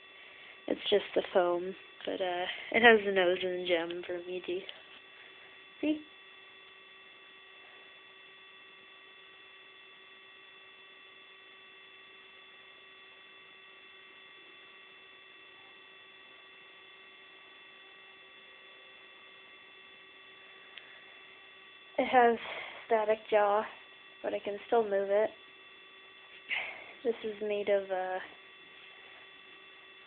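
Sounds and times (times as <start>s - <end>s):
faint electrical hum and hiss: 0.0s - 30.0s
steady whining tones: 0.0s - 30.0s.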